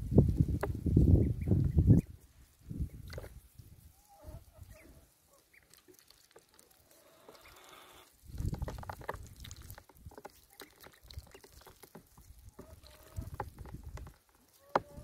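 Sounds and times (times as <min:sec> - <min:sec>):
ducklings peeping softly: 0:01.0 - 0:02.2, 0:02.8 - 0:08.1, 0:09.3 - 0:13.6
bills nibbling and dabbling: 0:02.0 - 0:15.0.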